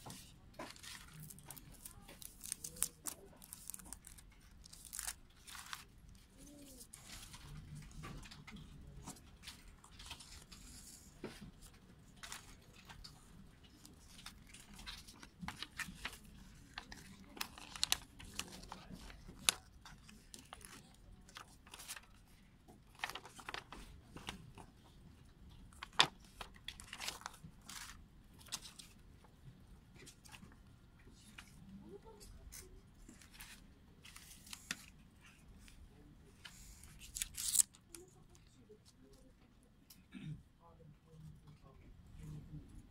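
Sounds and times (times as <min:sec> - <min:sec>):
plastic sleeve crinkling: 0:00.0 - 0:24.7, 0:25.7 - 0:28.9, 0:36.5 - 0:38.2.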